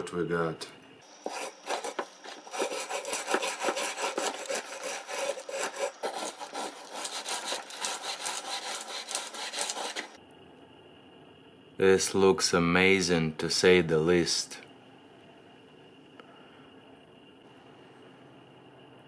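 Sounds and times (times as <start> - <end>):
wire brush scrubbing metal in water: 1.2 - 10.2.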